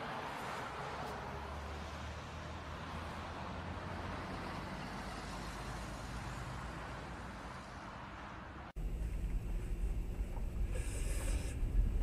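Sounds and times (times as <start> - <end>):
vehicle engine hum: 8.7 - 12.0
road hiss: 10.4 - 12.0.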